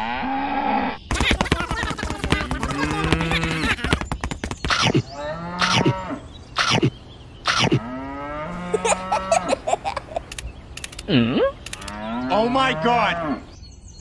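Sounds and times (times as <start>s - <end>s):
cartoon laughter: 1.1s - 4.1s, 8.6s - 10.4s
cow mooing: 7.6s - 9.6s, 11.9s - 13.4s.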